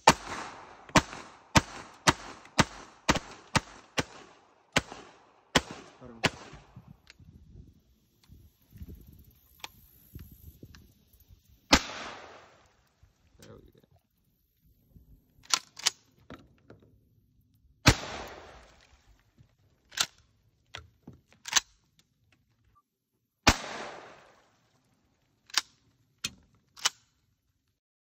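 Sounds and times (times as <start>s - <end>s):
shotgun blasts with echo: 0.0s - 7.0s, 11.7s - 12.8s, 17.8s - 18.8s, 23.4s - 24.5s
pump-action shotgun clicks: 15.4s - 16.2s, 19.9s - 22.0s, 25.4s - 27.2s.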